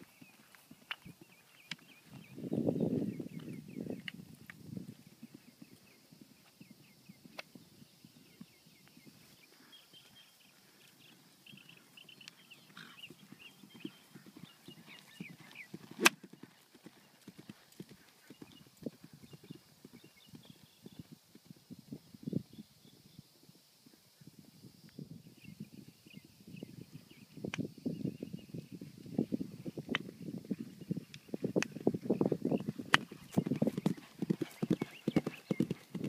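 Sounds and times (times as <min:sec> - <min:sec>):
birds chirping: 0:00.0 - 0:04.2, 0:05.0 - 0:16.1, 0:30.2 - 0:36.0
horse hooves thudding on turf: 0:31.4 - 0:36.0.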